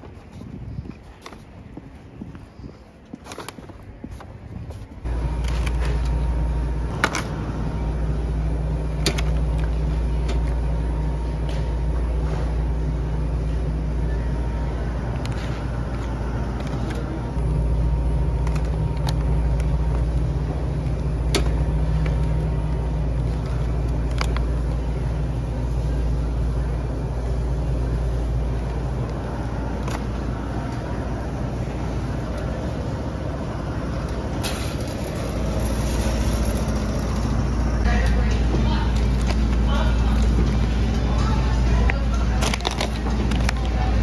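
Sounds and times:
supermarket background rumble: 0:00.0 - 0:44.0
plastic containers clicking: 0:42.4 - 0:43.8.

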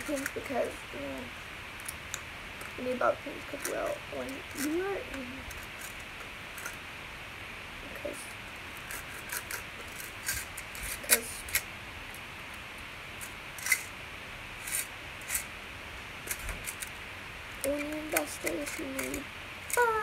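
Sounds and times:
bobby pins clicking in metal tin: 0:17.6 - 0:19.9.

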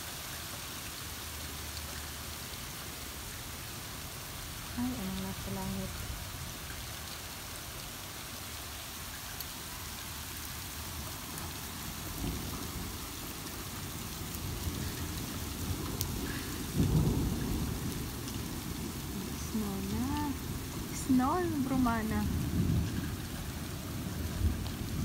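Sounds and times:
rain and hail hissing: 0:00.0 - 0:25.0
hail ticks: 0:11.3 - 0:25.0.

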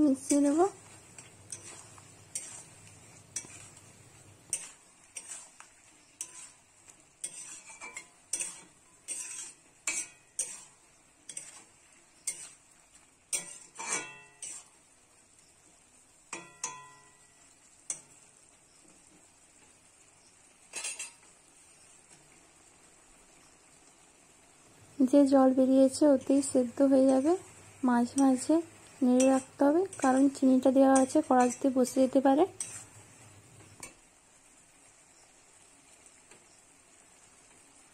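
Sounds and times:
metal spatula scraping pan: 0:00.1 - 0:12.7, 0:13.3 - 0:14.8, 0:20.7 - 0:21.3, 0:25.9 - 0:34.0.

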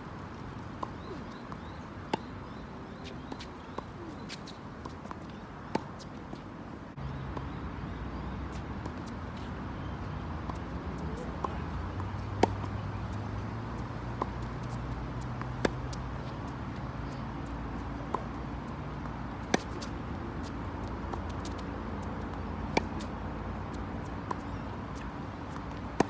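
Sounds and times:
tennis ball struck by rackets: 0:11.4 - 0:12.9, 0:19.4 - 0:26.0.

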